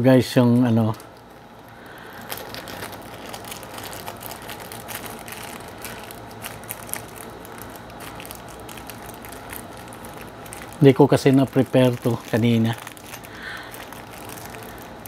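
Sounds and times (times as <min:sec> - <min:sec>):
plastic packet crinkling: 0:00.4 - 0:15.0
small crackles and clicks: 0:00.4 - 0:15.0.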